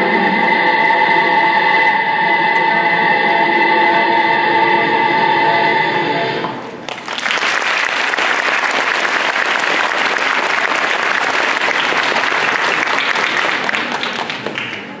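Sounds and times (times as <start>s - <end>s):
audience applause: 6.8s - 15.0s.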